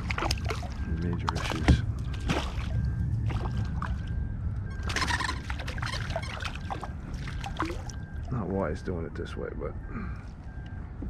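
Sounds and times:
fish splashing in water: 0.0 - 4.1, 4.8 - 8.3
wind rumble on microphone: 0.0 - 11.0.

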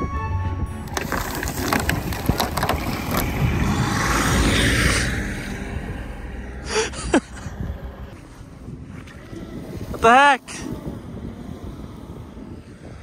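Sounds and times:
diesel engine rumbling: 0.0 - 13.0
wood cracking: 0.8 - 5.4.

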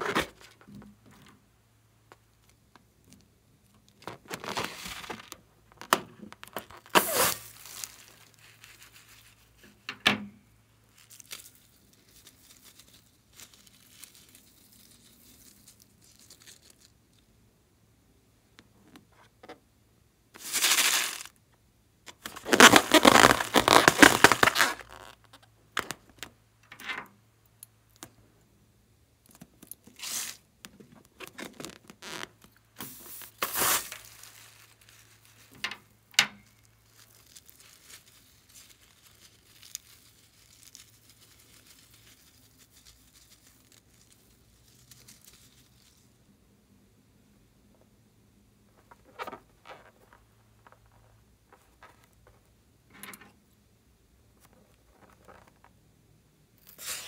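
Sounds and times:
rubber tearing: 4.0 - 9.0, 20.4 - 21.3, 22.1 - 26.0, 29.9 - 30.5, 31.2 - 35.1, 56.6 - 57.0.

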